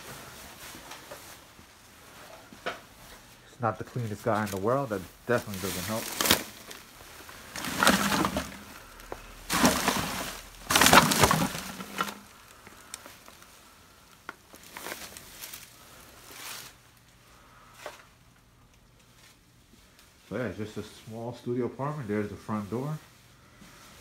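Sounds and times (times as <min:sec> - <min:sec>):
crackling and rustling: 0:00.0 - 0:24.0
plastic bottles crunching: 0:04.0 - 0:16.8.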